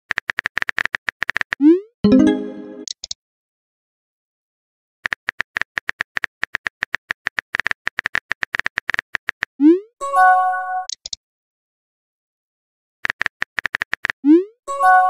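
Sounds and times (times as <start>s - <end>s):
electronic chime: 2.1s - 2.8s
phone keyboard typing clicks: 5.0s - 9.5s, 13.0s - 14.2s.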